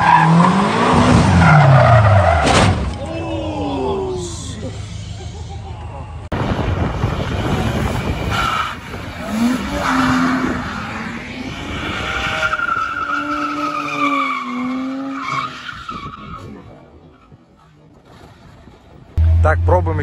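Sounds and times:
tyres skidding and squealing: 0:00.0 - 0:20.0.

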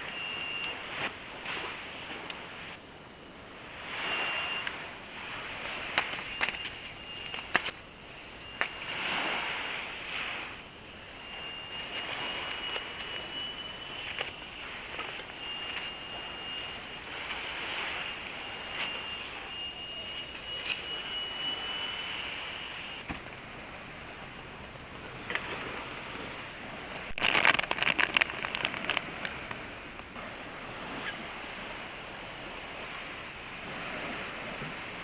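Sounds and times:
insects buzzing: 0:04.0 - 0:23.1
backpack clicks and rustling: 0:06.0 - 0:07.8, 0:27.2 - 0:29.3.

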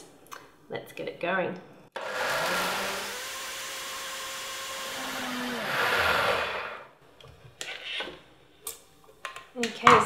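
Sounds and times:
blender running: 0:02.0 - 0:06.9.

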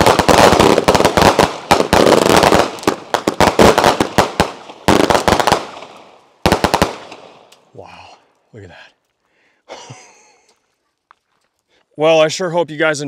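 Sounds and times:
fireworks barrage firing: 0:00.0 - 0:07.5.

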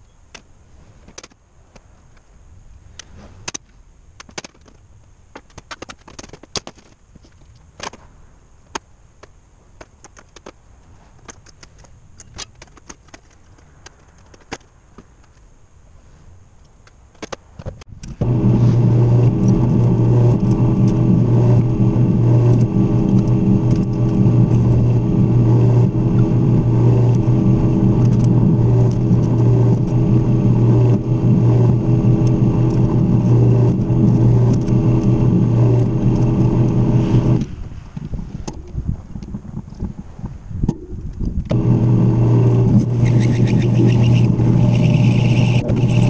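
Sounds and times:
drill press motor humming: 0:18.2 - 0:37.4, 0:41.5 - 0:46.0.

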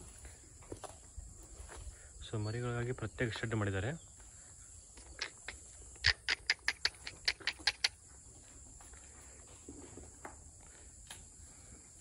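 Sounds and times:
crickets buzzing: 0:00.0 - 0:12.0
sharp clicking taps: 0:05.0 - 0:08.0.

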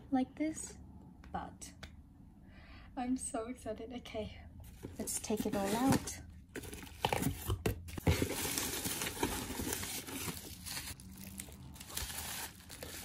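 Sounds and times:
bubble wrap crinkling: 0:08.0 - 0:13.0.

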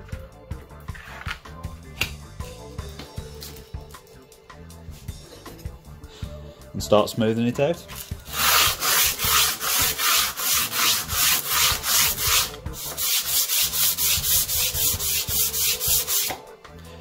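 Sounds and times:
blade rubbing on abrasive paper: 0:08.2 - 0:16.4.

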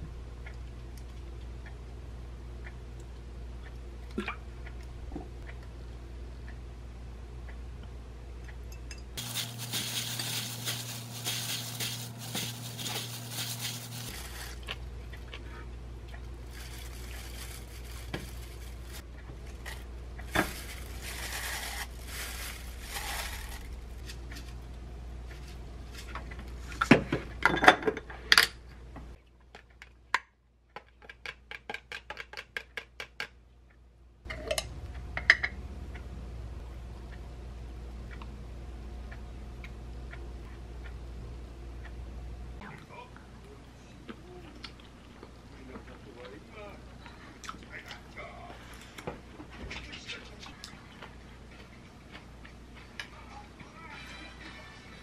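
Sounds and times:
steady hum with hiss: 0:00.0 - 0:29.2, 0:33.4 - 0:55.0
spoon tossing food in glass bowl: 0:09.2 - 0:14.8.

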